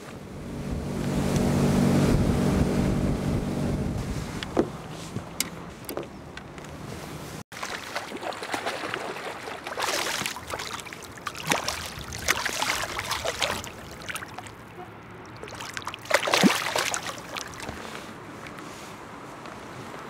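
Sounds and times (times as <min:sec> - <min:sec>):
fish splashing in water: 0:07.5 - 0:18.0.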